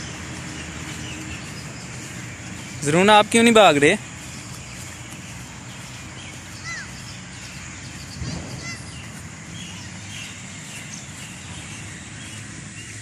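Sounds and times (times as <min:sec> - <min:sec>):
birds chirping: 0:00.0 - 0:13.0
outdoor background hiss: 0:00.0 - 0:13.0.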